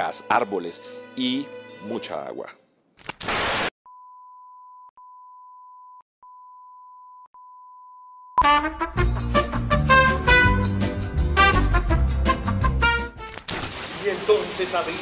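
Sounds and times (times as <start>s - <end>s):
tv static: 3.2s - 3.7s
loud brassy music: 8.4s - 13.3s.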